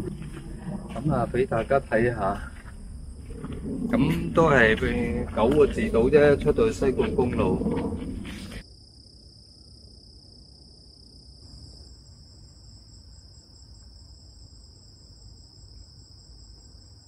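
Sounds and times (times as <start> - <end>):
faint low rumble: 0.0 - 8.6
higher pulsing insect trill: 0.0 - 17.0
insects trilling: 0.0 - 17.0.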